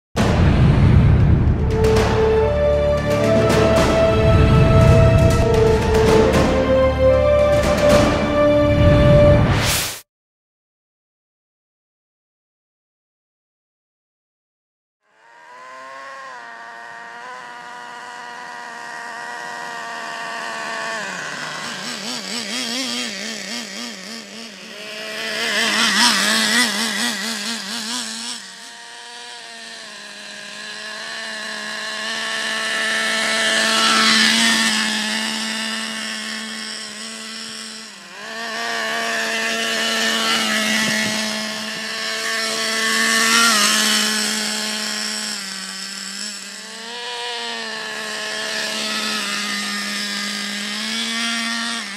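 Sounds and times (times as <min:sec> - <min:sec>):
rc truck engine buzzing: 0:00.2 - 0:09.3, 0:15.0 - 0:51.9.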